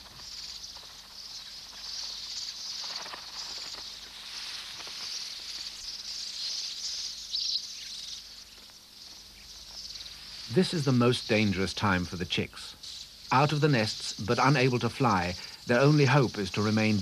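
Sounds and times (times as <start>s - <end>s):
birds chattering in a colony: 0.0s - 17.0s
loud bird chirps: 0.0s - 17.0s.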